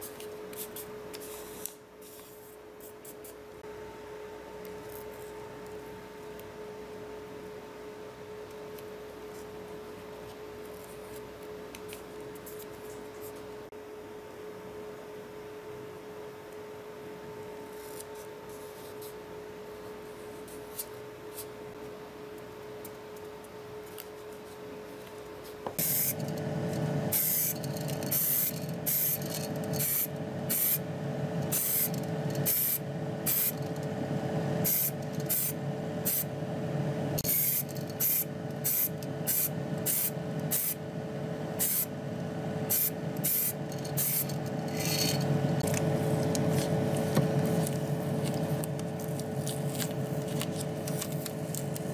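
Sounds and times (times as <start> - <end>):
steady hum: 0.0 - 51.9
spray paint hissing bursts: 25.8 - 26.2, 27.1 - 29.2, 29.8 - 30.8, 31.5 - 33.6, 34.6 - 36.3, 37.2 - 40.8, 41.6 - 41.9, 42.7 - 44.3
hands rustling masking tape: 42.7 - 51.9.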